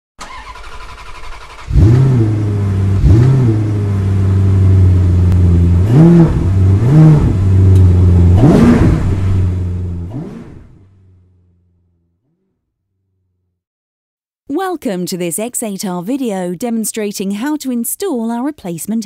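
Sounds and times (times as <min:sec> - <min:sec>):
car engine idling and revving: 0:00.2 - 0:12.6.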